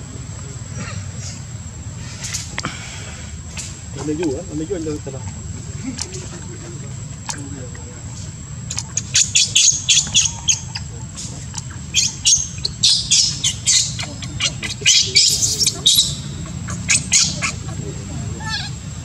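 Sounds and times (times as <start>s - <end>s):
baby monkey screaming: 9.2s - 10.8s, 11.9s - 17.7s, 18.4s - 18.8s.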